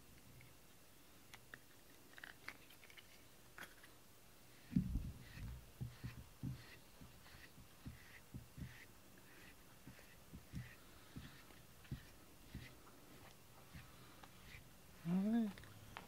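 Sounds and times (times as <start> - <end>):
brush rustling through cat fur: 4.5 - 15.6
soft low thud: 4.7 - 6.6.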